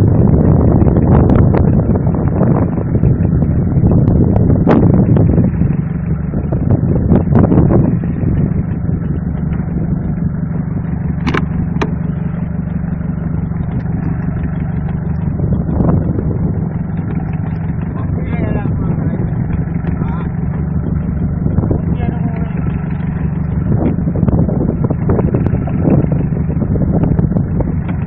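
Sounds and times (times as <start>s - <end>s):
boat engine running: 0.0s - 28.0s
water sloshing: 8.0s - 24.1s
sharp knocks: 11.2s - 12.2s.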